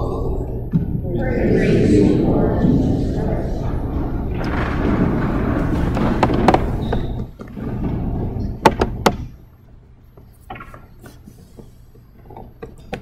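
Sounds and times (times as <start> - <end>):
congregation shuffling and rustling: 1.2 - 8.4
scattered knocks: 2.8 - 9.4
sharp thuds: 3.6 - 9.3.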